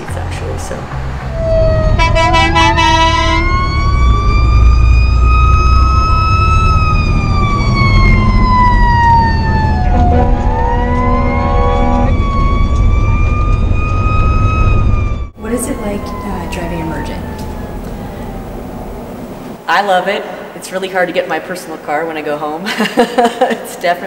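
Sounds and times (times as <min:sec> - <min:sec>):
deep engine rumble: 0:00.0 - 0:19.6
fire engine siren wailing: 0:01.2 - 0:19.2
horn blasts: 0:01.9 - 0:03.7, 0:09.8 - 0:12.2.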